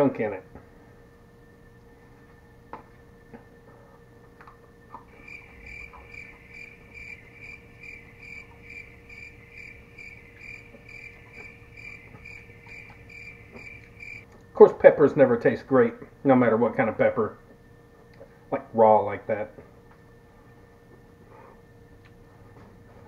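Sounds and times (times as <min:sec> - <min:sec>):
faint steady hum: 0:00.0 - 0:23.0
cricket chirping: 0:01.0 - 0:15.3.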